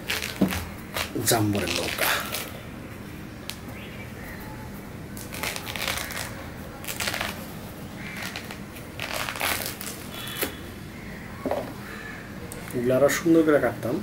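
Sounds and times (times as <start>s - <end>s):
fruit rind tearing by hand: 0.0s - 2.6s, 5.2s - 10.6s.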